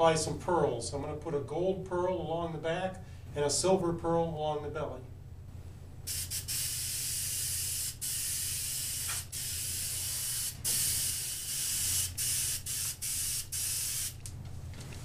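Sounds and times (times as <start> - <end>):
airbrush spraying hiss: 6.1 - 14.2.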